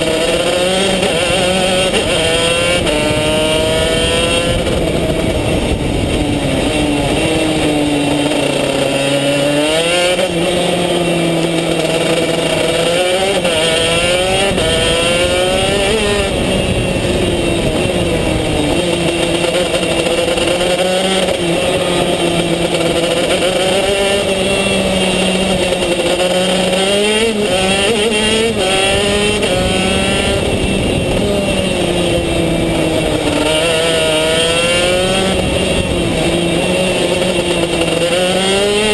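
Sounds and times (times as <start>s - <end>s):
kart engine revving: 0.0s - 38.9s.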